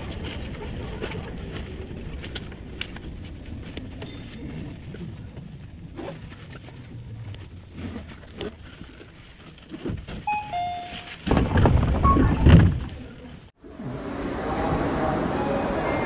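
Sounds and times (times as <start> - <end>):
train rumble: 0.0 - 16.0
short chime tones: 10.3 - 11.1
knocks and clunks: 11.1 - 13.2.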